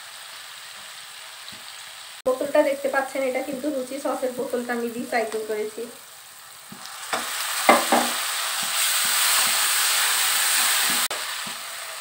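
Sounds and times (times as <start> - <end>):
paste sizzling in a wok: 0.0 - 12.0
spatula scraping a wok: 7.0 - 12.0.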